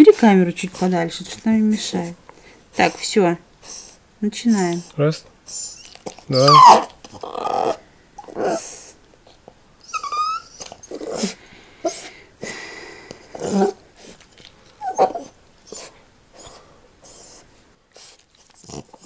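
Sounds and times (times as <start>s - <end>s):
puppy whining: 4.7s - 12.2s, 13.2s - 14.2s, 14.8s - 19.0s
puppy grunting cries: 4.8s - 9.0s, 9.8s - 12.1s, 13.3s - 14.2s, 14.8s - 17.4s.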